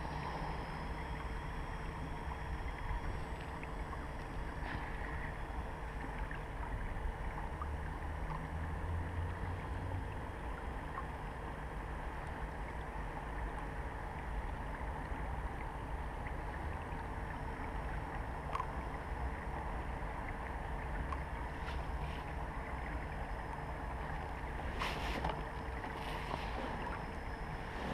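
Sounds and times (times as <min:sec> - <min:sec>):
faint steady hum: 0:00.0 - 0:27.9
wind and water rumble: 0:00.0 - 0:27.9
faint ticks: 0:18.5 - 0:19.0, 0:21.0 - 0:22.3.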